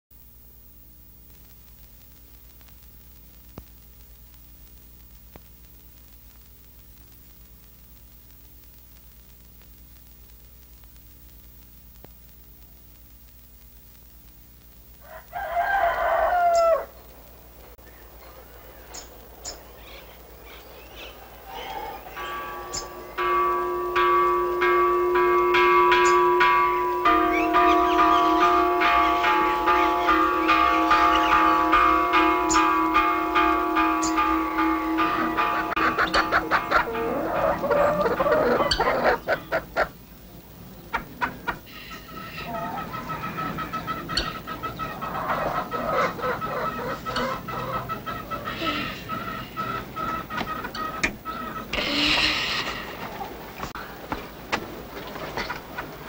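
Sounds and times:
videotape hiss: 0:00.1 - 0:25.2, 0:34.1 - 0:42.7
low electrical hum: 0:00.1 - 0:56.0
faint clicks: 0:01.3 - 0:15.0
birds chirping: 0:15.4 - 0:56.0
bells ringing: 0:17.8 - 0:39.4.

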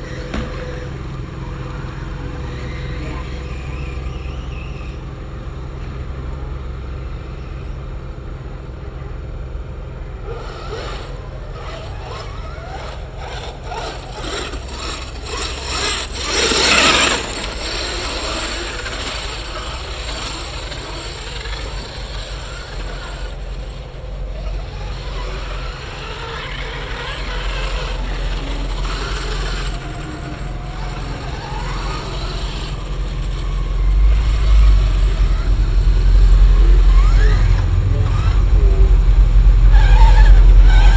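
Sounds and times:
electric motor whining: 0:00.0 - 0:07.8, 0:10.0 - 0:40.9
low rumble: 0:32.5 - 0:40.9.

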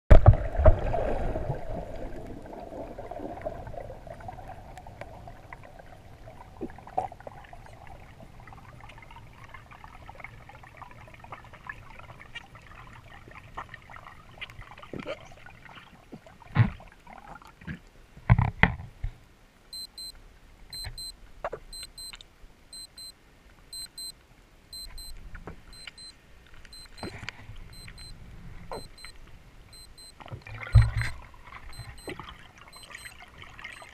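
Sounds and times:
underwater rush of water: 0:00.1 - 0:17.8
dive computer double beep: 0:19.8 - 0:20.1, 0:20.8 - 0:21.1, 0:21.7 - 0:23.1, 0:23.8 - 0:24.1, 0:24.7 - 0:25.1, 0:25.7 - 0:26.1, 0:26.7 - 0:27.1, 0:27.7 - 0:29.1, 0:29.7 - 0:33.9.

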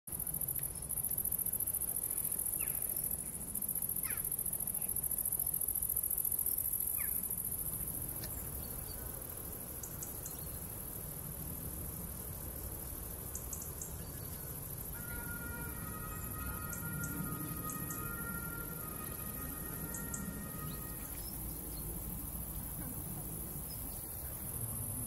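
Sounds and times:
crickets trilling: 0:00.1 - 0:25.0
falling bird calls: 0:15.0 - 0:22.1.

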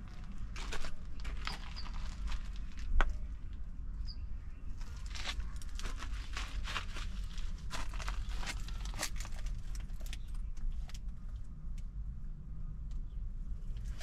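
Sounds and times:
footsteps on a path: 0:00.0 - 0:03.4, 0:04.8 - 0:10.2.

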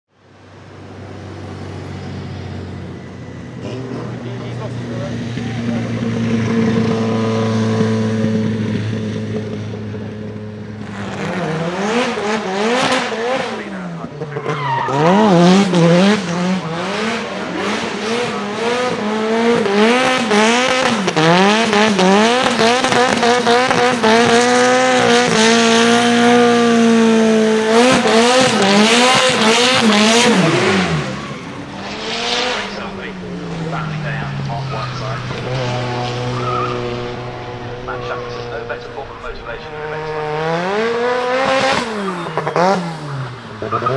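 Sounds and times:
turbocharged car engine revving: 0:00.3 - 0:43.9
tyres squealing: 0:14.2 - 0:15.5, 0:27.8 - 0:40.3.

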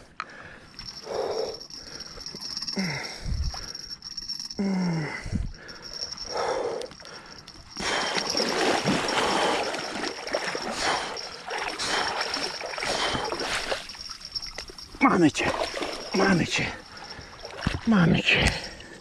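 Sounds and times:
fish thrashing and splashing water: 0:07.8 - 0:14.8, 0:15.5 - 0:16.2, 0:16.9 - 0:17.9.

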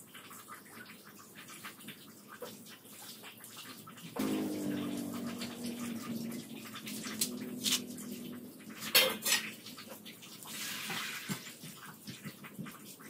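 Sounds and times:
steady low hum: 0:04.2 - 0:09.8.

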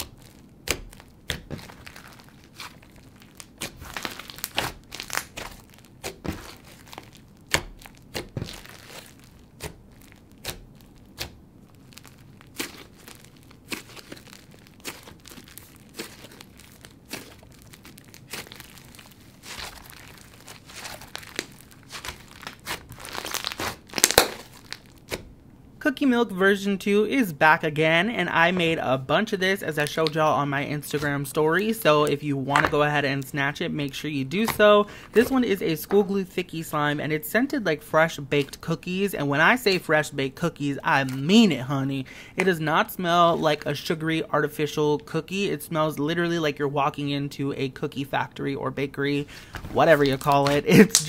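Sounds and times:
crunchy slime being squeezed: 0:00.0 - 0:25.4.

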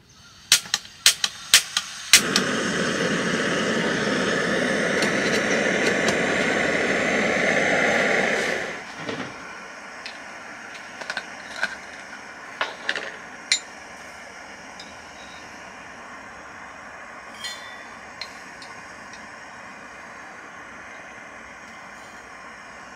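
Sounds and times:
gas stove burner running: 0:00.5 - 0:22.9
metal cup and lid clinking: 0:17.4 - 0:18.7.

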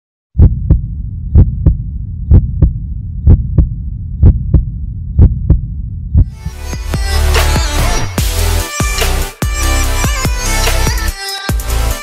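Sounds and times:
steady low hum: 0:00.4 - 0:06.4
heartbeat thumps: 0:00.4 - 0:07.0.

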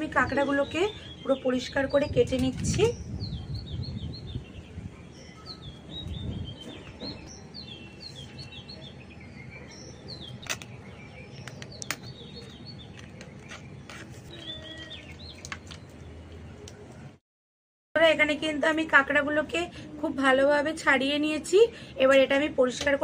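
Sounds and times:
small birds chirping: 0:00.2 - 0:16.8
crab shells cracking: 0:10.3 - 0:15.9.

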